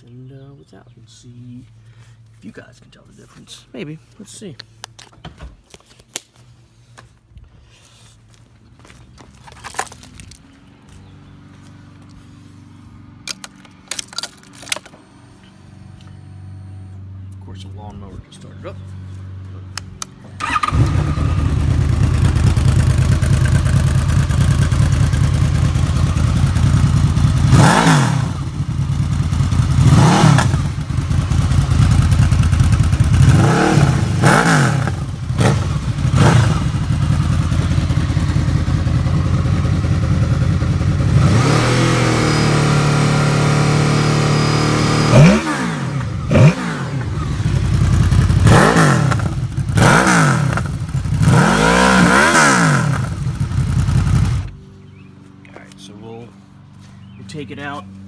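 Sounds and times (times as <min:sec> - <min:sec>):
motorcycle engine revving: 0:19.7 - 0:55.1.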